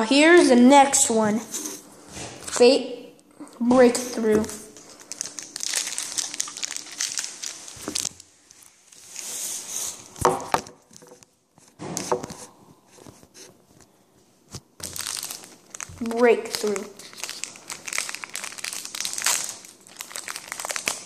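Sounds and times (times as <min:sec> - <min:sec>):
foil wrapper crinkling and tearing: 0:04.7 - 0:09.3, 0:14.8 - 0:21.0.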